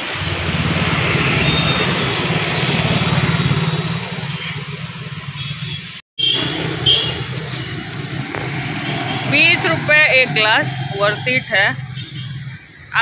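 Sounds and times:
motorcycle engine running: 0:00.0 - 0:12.6
street traffic noise: 0:00.0 - 0:13.0.

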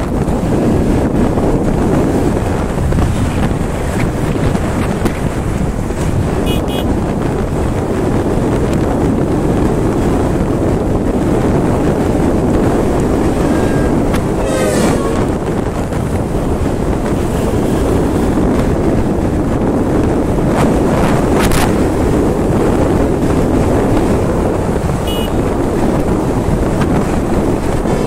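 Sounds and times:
wind roaring over microphone: 0:00.0 - 0:28.0
short double beep: 0:06.5 - 0:06.9, 0:25.1 - 0:25.4
brief warbling tone: 0:13.4 - 0:15.4.

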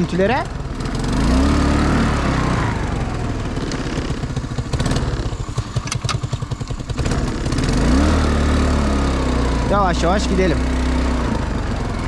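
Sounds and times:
quad bike engine idling: 0:00.0 - 0:12.0.

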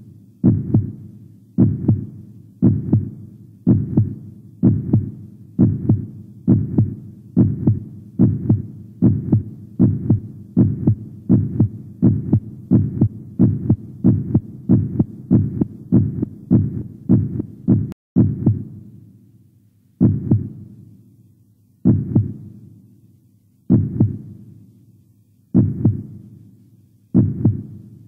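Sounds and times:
heartbeat thumps: 0:00.4 - 0:01.0, 0:01.6 - 0:18.7, 0:20.0 - 0:20.6, 0:21.8 - 0:22.4, 0:23.7 - 0:24.3, 0:25.6 - 0:26.2, 0:27.2 - 0:27.8.

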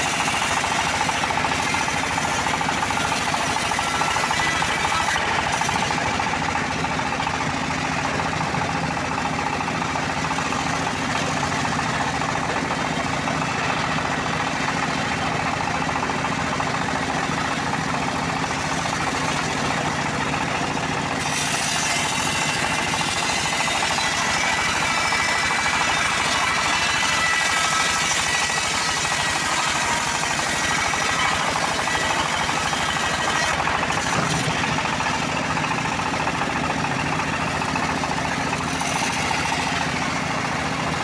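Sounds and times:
bandsaw mill engine running: 0:00.0 - 0:41.0
saw blade cutting log: 0:00.0 - 0:41.0.

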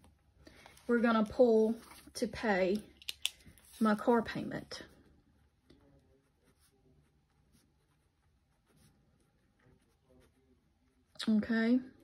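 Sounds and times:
faint paper rustling: 0:00.4 - 0:02.8, 0:03.4 - 0:11.0.

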